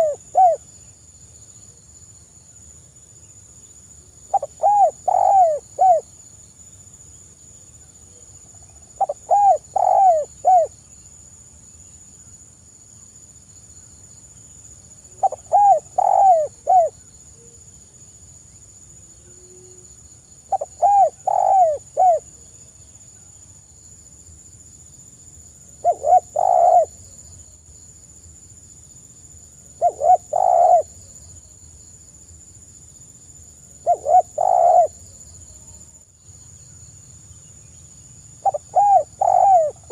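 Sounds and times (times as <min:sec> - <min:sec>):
dove cooing: 0:00.0 - 0:00.6, 0:04.3 - 0:06.1, 0:09.0 - 0:10.7, 0:15.2 - 0:17.0, 0:20.5 - 0:22.3, 0:25.8 - 0:27.0, 0:29.8 - 0:31.0, 0:33.8 - 0:35.0, 0:38.4 - 0:39.9.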